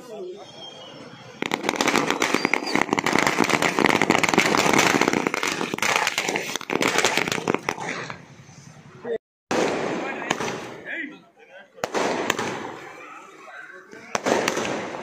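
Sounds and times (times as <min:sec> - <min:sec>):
firecrackers popping: 0:01.4 - 0:08.2, 0:09.5 - 0:10.9, 0:11.8 - 0:12.8, 0:14.1 - 0:15.0.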